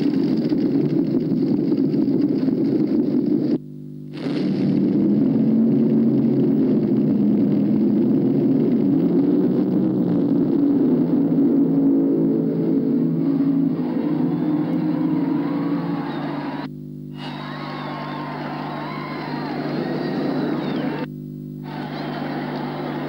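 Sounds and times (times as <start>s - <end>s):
vehicle engine humming: 4.5s - 23.0s.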